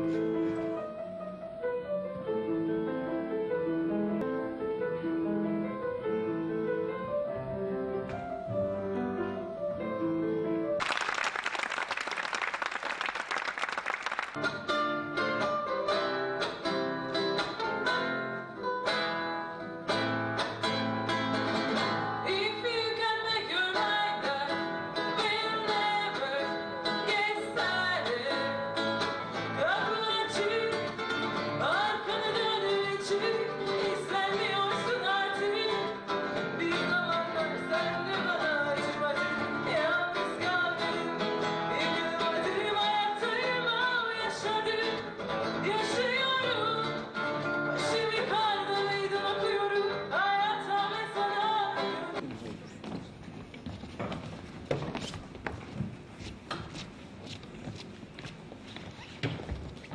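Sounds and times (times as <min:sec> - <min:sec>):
acoustic guitars playing: 0:14.4 - 0:52.2
person singing: 0:22.2 - 0:28.7, 0:31.6 - 0:47.0.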